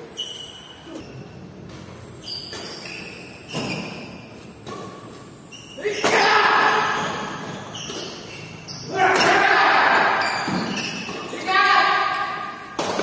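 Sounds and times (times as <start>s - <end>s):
rackets hitting shuttlecock: 12.1s - 13.0s.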